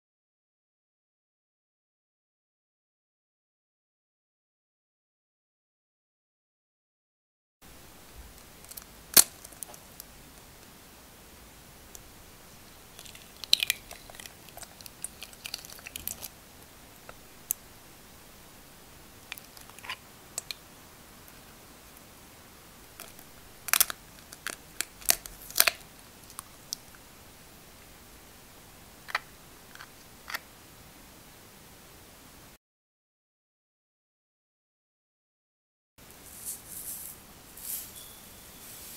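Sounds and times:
eggshell crackling: 7.7 - 10.8, 11.6 - 28.0, 28.7 - 30.6
eggshell clicking and tapping: 12.9 - 16.4, 19.2 - 20.6.

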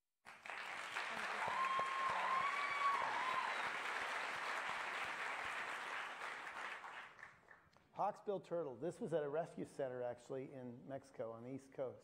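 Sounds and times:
audience applause: 0.2 - 7.6
person whooping: 1.2 - 3.8.

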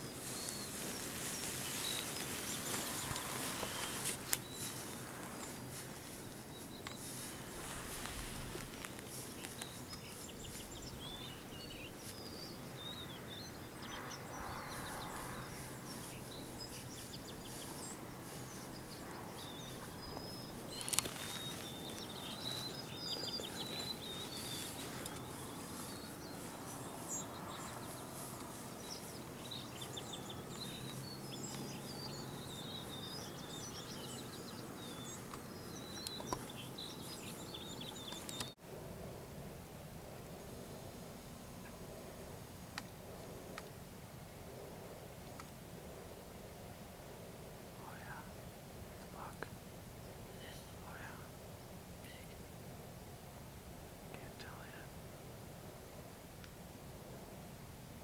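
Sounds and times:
small birds chirping: 0.0 - 38.6, 47.7 - 52.6, 54.0 - 55.0
outdoor background hiss: 0.0 - 58.0.

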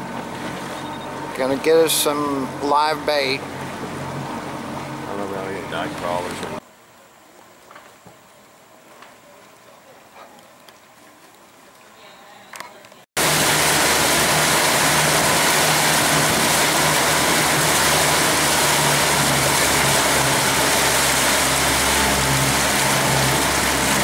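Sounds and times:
outboard motor hum: 0.0 - 7.2, 13.2 - 24.0
rush of wind and water: 13.2 - 24.0.

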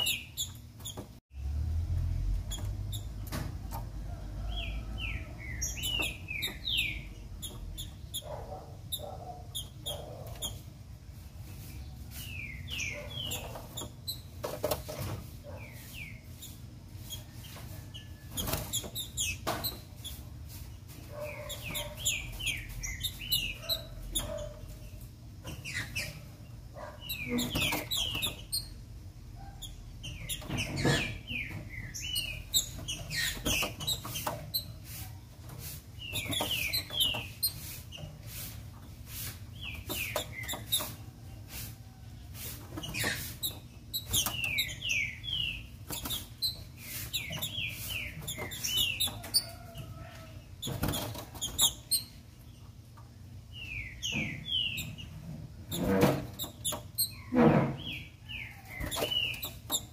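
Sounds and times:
bird chirping: 0.0 - 1.1, 2.4 - 10.7, 11.4 - 14.8, 15.5 - 35.0, 35.6 - 38.4, 39.5 - 41.4, 42.7 - 52.8, 53.4 - 59.9.

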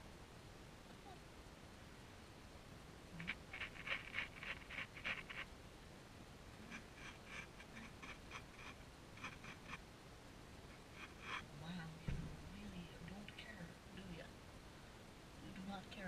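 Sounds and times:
light scratching: 3.1 - 5.5, 6.6 - 9.8, 10.7 - 12.7.

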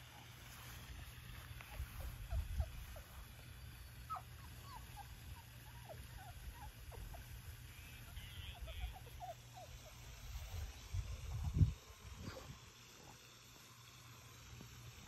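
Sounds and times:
puppies squeaking and whimpering: 1.9 - 10.8.

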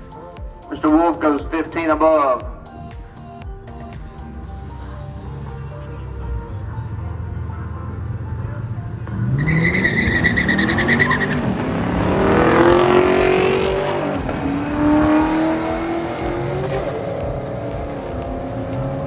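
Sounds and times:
drag cars accelerating: 8.0 - 19.0
high tyre squeal: 9.2 - 12.5.

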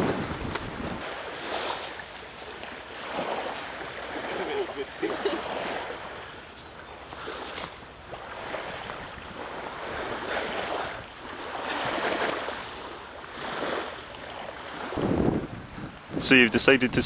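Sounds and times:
small waves washing onto shore: 0.0 - 17.0
wind: 0.0 - 17.0.

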